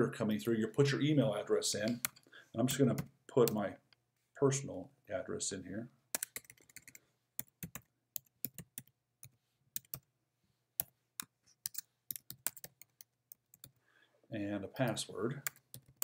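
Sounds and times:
keyboard typing: 6.1s - 10.1s, 10.8s - 13.8s, 14.8s - 16.0s.

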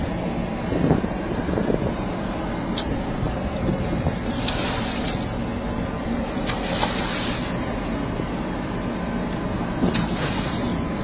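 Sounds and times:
boat engine rumble: 0.0s - 11.0s
fish splashing at surface: 6.4s - 7.7s.

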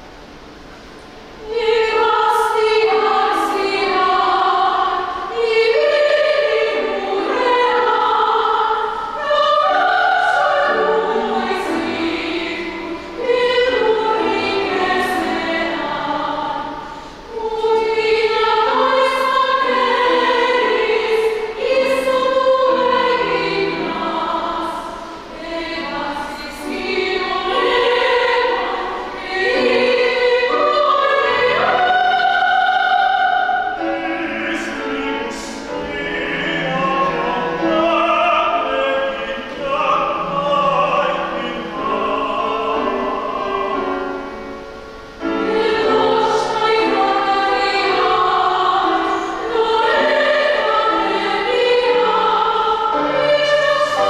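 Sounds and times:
piano accompaniment: 0.0s - 54.0s
operatic voice singing: 17.4s - 44.2s.

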